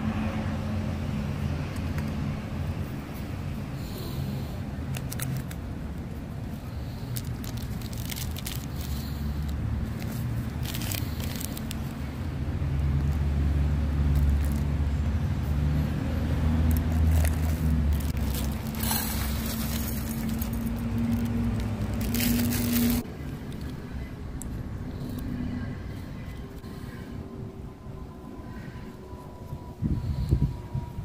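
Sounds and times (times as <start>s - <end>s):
vehicle engine drone: 0.0s - 31.0s
food packets crinkling: 4.9s - 5.6s, 6.9s - 12.0s, 14.1s - 14.7s, 16.5s - 23.0s.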